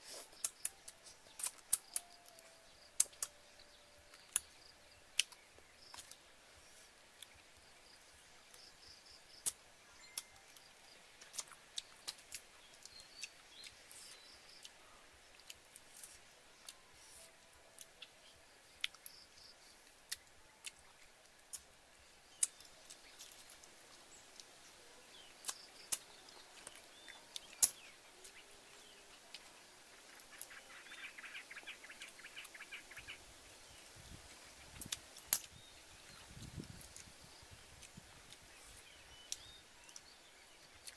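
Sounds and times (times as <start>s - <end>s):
faint bird chirps: 0.0s - 40.9s.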